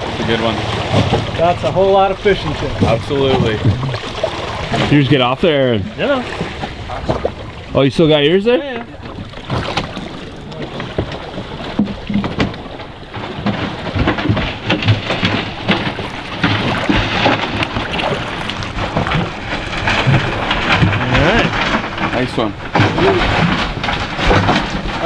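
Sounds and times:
water rushing and splashing: 0.0 - 25.0
knocks and thumps: 0.8 - 5.0, 9.0 - 25.0.

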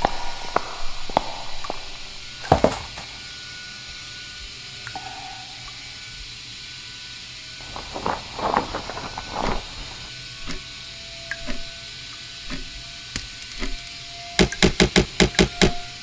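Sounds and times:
cloth rustling: 7.6 - 10.7
loud heavy clicks: 7.7 - 11.8, 12.4 - 15.8.

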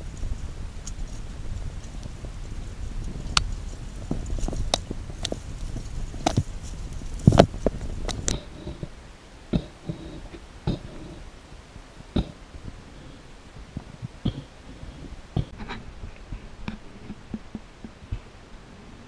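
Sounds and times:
bicycle rumbling on dirt trail: 0.0 - 19.0
faint clicks: 0.1 - 11.3.

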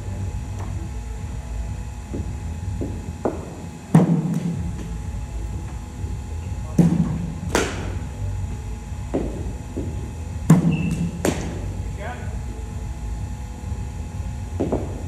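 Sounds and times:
cricket bat striking ball: 2.1 - 4.9, 6.8 - 8.1, 9.1 - 11.8, 14.6 - 15.0.

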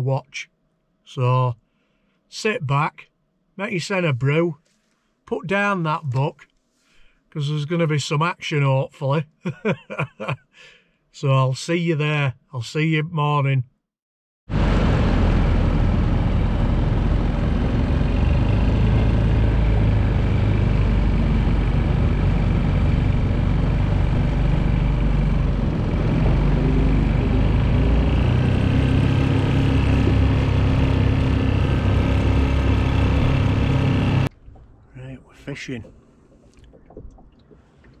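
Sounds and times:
rushing noise: 14.5 - 34.3
engine droning steadily: 14.5 - 37.0.

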